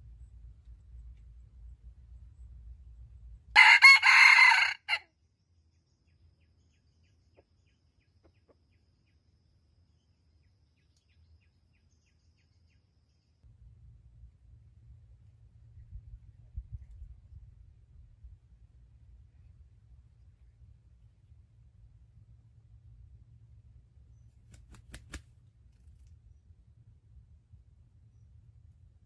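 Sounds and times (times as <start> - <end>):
rooster crowing: 3.5 - 5.1.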